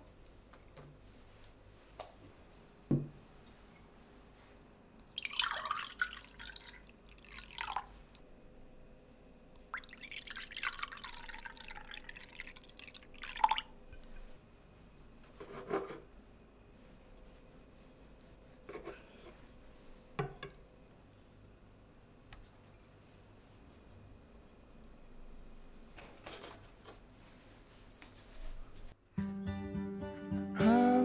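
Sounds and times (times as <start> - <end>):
juice pouring into mugs: 5.0 - 7.9, 9.6 - 13.8.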